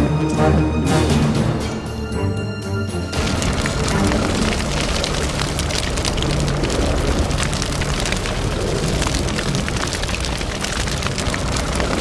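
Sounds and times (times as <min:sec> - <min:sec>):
low rumble: 0:03.0 - 0:12.0
charcoal crackling and popping: 0:03.1 - 0:12.0
fire rushing: 0:03.1 - 0:12.0.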